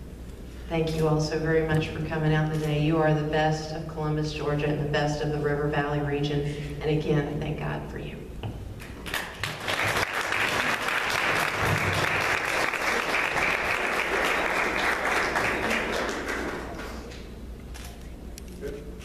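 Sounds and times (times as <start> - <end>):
audience applauding: 9.0 - 17.2.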